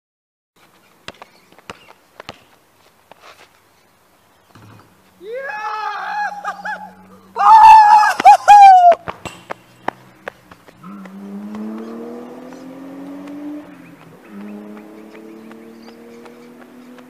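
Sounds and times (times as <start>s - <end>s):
basketball bouncing on concrete: 1.0s - 2.6s, 9.0s - 17.0s
car engine accelerating: 9.5s - 17.0s.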